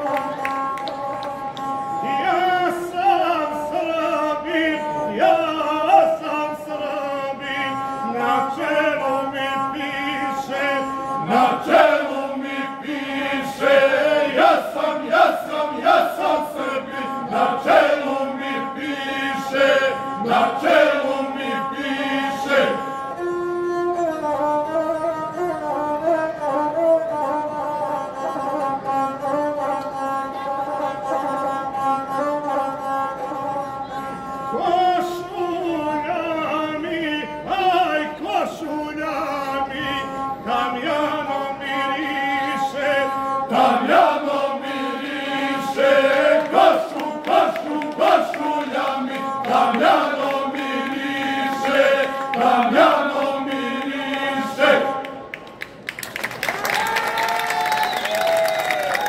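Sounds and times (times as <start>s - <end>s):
applause: 0.0s - 1.4s, 55.3s - 59.0s
bowed single-string fiddle: 0.0s - 55.3s
men singing: 2.0s - 22.9s, 39.1s - 55.1s.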